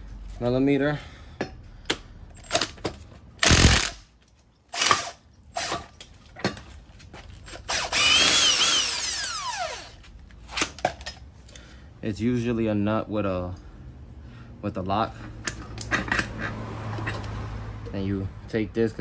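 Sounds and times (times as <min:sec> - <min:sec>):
tools clicking and knocking: 0:01.4 - 0:08.3, 0:15.2 - 0:17.4
power wrench whining: 0:02.4 - 0:04.1, 0:04.7 - 0:06.1, 0:07.4 - 0:10.0.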